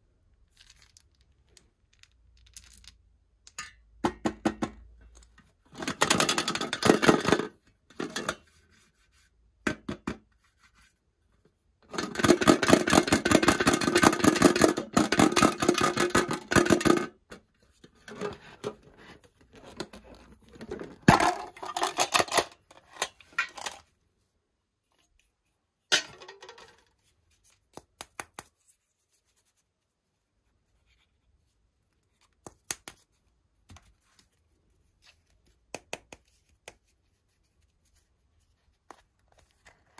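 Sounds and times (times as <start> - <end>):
hands crackling and tapping on tin: 27.7 - 28.6.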